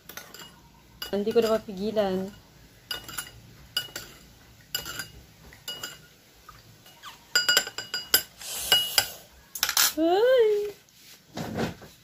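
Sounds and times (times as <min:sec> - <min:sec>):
metal spoon clinking glass bowl: 0:00.0 - 0:06.1, 0:06.8 - 0:10.0.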